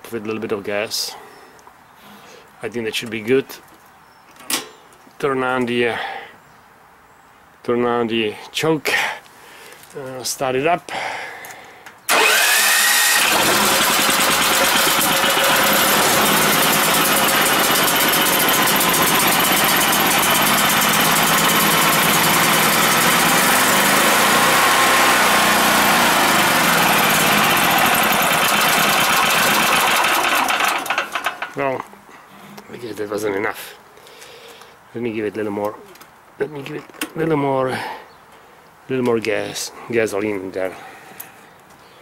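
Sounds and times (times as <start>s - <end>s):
generator engine starting and running: 12.1s - 31.6s.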